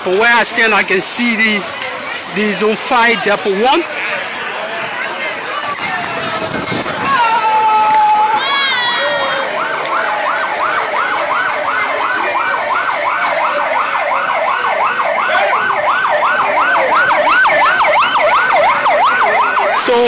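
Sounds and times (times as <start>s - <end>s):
electronic siren yelping: 9.0s - 20.0s.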